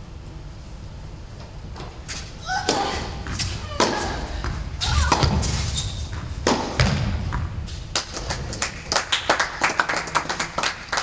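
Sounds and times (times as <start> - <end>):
racquets hitting tennis ball: 2.6 - 9.3
ball thudding on court: 2.7 - 7.6.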